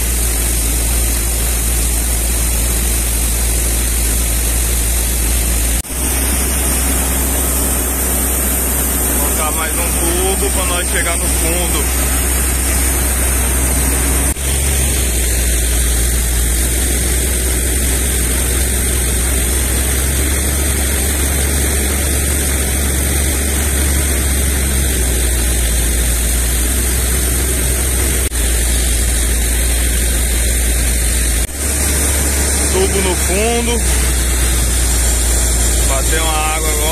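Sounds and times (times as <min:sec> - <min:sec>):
diesel engine running under load: 0:00.0 - 0:36.9.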